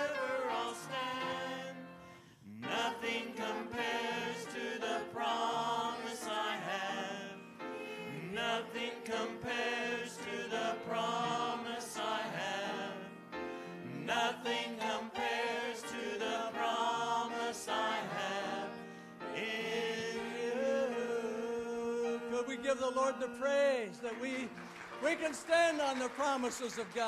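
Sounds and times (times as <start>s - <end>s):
group singing a worship song: 0.0s - 22.6s.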